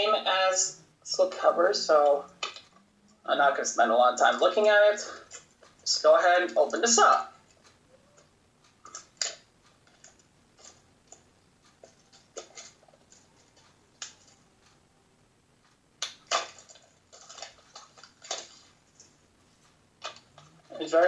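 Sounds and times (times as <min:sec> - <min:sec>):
plastic wrapping crinkling: 0:16.0 - 0:19.2.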